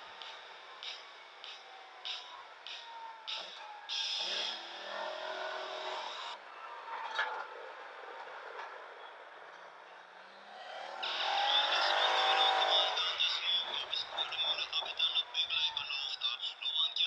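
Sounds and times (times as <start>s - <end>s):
atv engine accelerating: 3.9s - 6.4s, 10.3s - 15.0s.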